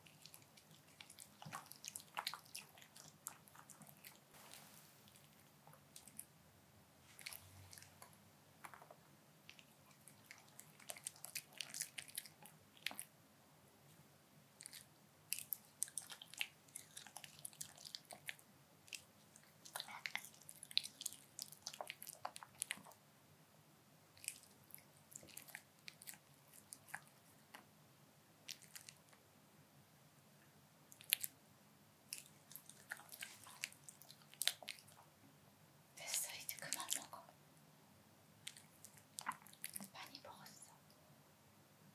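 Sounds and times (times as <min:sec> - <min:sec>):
dog chewing food: 0:00.0 - 0:04.2, 0:09.5 - 0:13.1.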